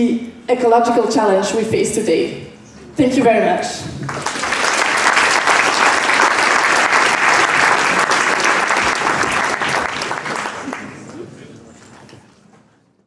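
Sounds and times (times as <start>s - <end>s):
audience applauding: 4.0s - 12.0s.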